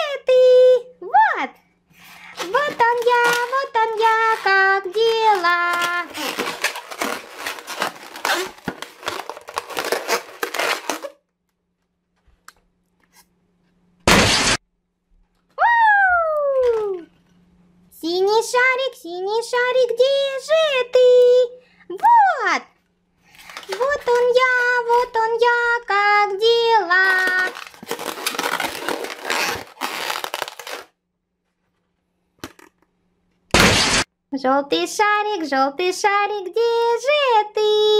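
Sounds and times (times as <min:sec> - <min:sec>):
balloons squeaking and rubbing: 0:02.1 - 0:11.2, 0:27.0 - 0:30.9, 0:33.6 - 0:34.1
balloon bursting: 0:14.0 - 0:14.6, 0:33.5 - 0:34.1.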